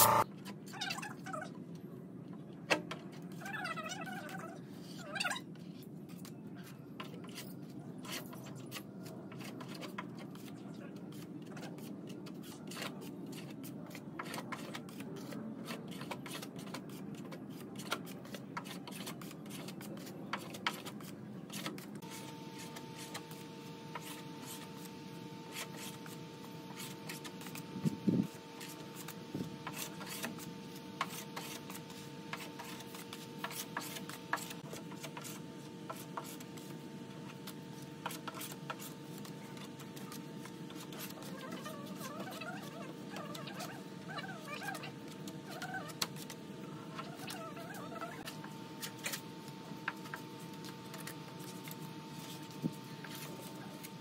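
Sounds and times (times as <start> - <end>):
steady hum: 0.0 - 0.2, 21.9 - 54.0.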